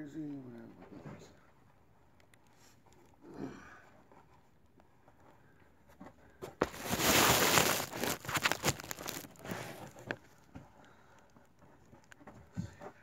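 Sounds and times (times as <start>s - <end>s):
loud rough crackling and rustling: 6.6s - 10.2s.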